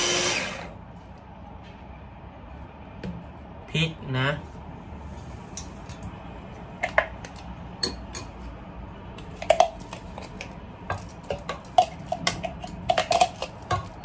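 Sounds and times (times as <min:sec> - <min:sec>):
metal spoon scraping plastic cup: 0:11.1 - 0:13.8.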